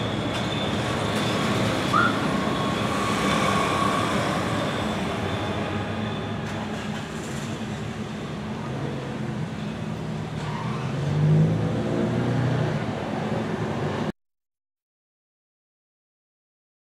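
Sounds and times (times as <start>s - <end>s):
freight train rumbling past: 0.0s - 14.1s
engine revving: 10.9s - 12.8s.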